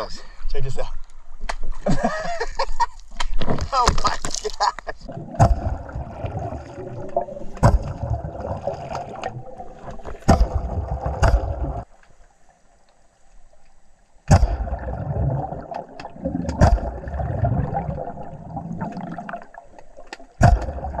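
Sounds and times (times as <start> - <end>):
underwater bubbling: 5.0 - 21.0
sharp pops of air blasts: 14.3 - 14.8, 20.4 - 20.9.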